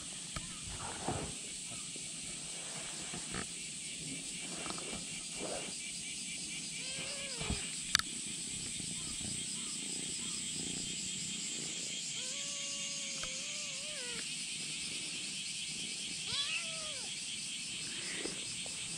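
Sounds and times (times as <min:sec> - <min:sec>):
insects buzzing: 0:00.0 - 0:18.9
kitten meowing: 0:12.2 - 0:14.2, 0:16.3 - 0:17.1.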